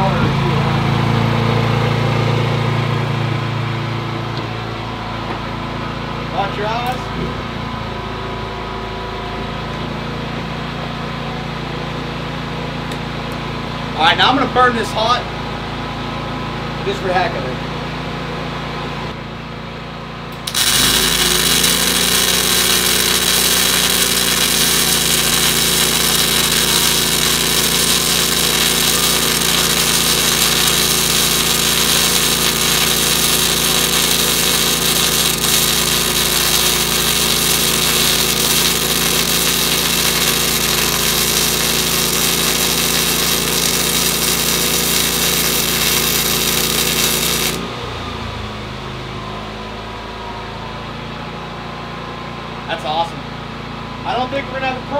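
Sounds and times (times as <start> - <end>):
generator engine humming: 0.0 - 54.9
welding arc sizzling: 20.4 - 47.8.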